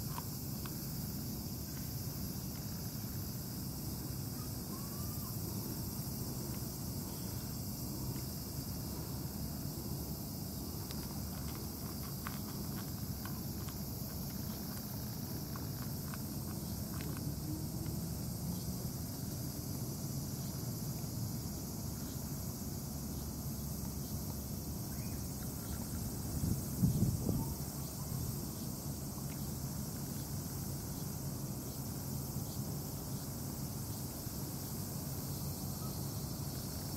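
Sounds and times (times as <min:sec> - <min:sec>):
insects hissing: 0:00.0 - 0:36.9
cat crunching dry kibble: 0:10.8 - 0:18.0.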